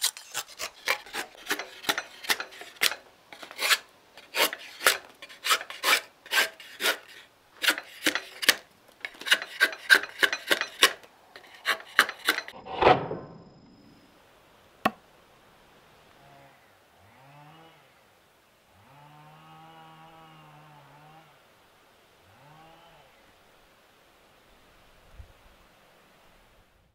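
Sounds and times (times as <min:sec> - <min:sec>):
drawknife scraping wood: 0:00.0 - 0:12.8.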